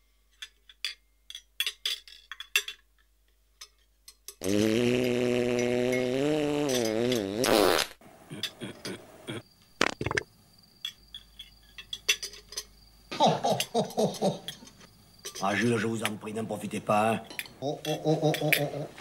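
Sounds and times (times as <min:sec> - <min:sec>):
cutlery and dishes clinking: 0:00.3 - 0:04.4, 0:10.9 - 0:12.7, 0:14.5 - 0:16.2
fart sound effect: 0:04.4 - 0:08.0.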